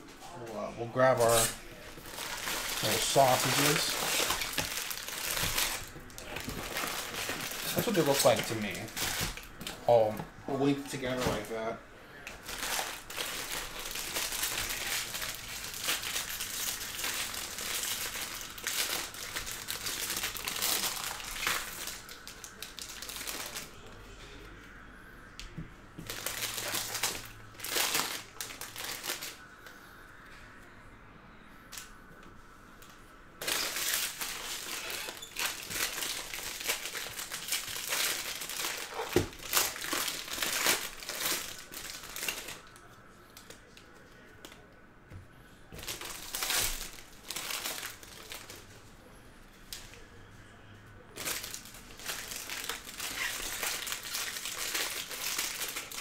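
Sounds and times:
foil wrappers tearing and crinkling: 1.0s - 11.5s, 12.4s - 23.7s, 26.0s - 29.4s, 33.4s - 42.8s, 45.8s - 48.7s, 51.2s - 56.0s.

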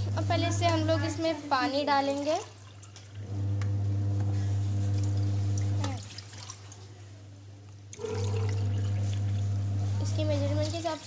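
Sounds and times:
water pouring into plastic cup: 7.9s - 11.0s.

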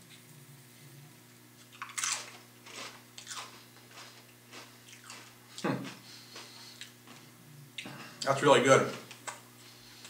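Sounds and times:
chip crunching while chewing: 1.6s - 7.2s.

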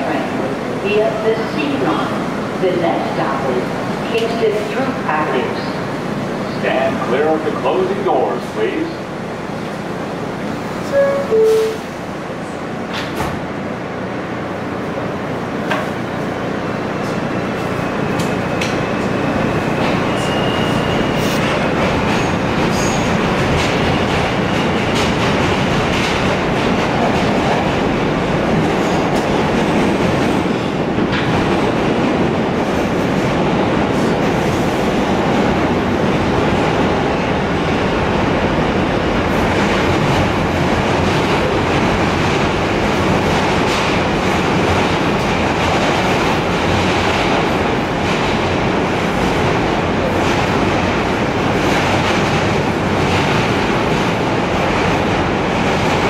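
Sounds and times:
train rumble and wheel clatter: 0.0s - 56.0s
two-tone door chime: 10.9s - 11.8s.

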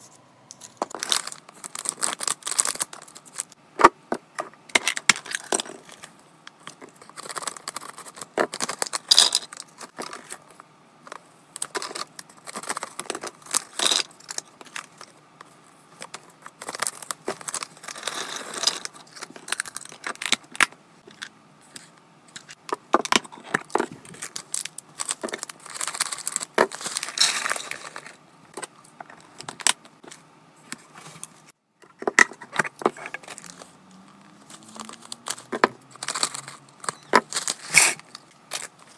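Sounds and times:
packaging rustling: 0.8s - 3.6s, 5.2s - 10.4s, 11.6s - 15.1s, 16.0s - 20.4s, 23.3s - 28.2s, 32.8s - 38.9s.

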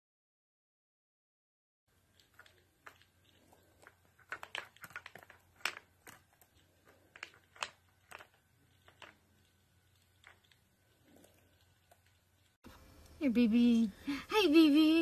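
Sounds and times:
light clicks and crinkling taps: 2.1s - 13.2s.

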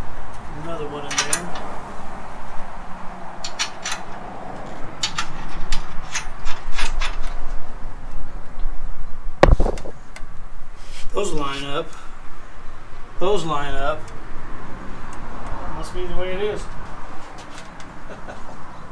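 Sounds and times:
loud metal knock: 9.4s - 10.0s.

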